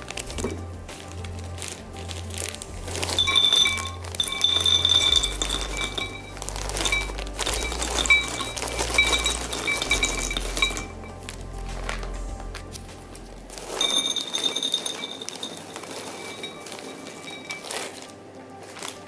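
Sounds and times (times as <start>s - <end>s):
nuts rattling into glass bowl: 0.0s - 12.0s, 13.5s - 19.0s
background music: 0.0s - 19.0s.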